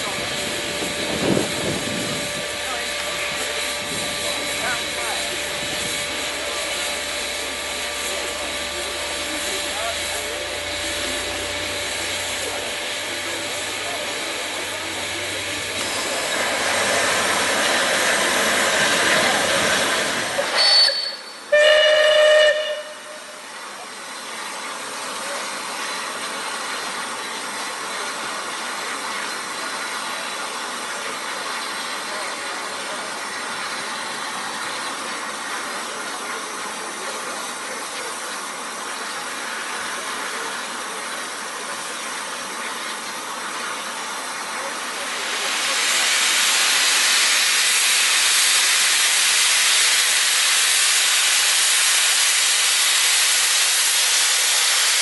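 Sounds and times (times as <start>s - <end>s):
steam locomotive hissing: 0.0s - 55.0s
train whistle blast: 20.5s - 23.4s.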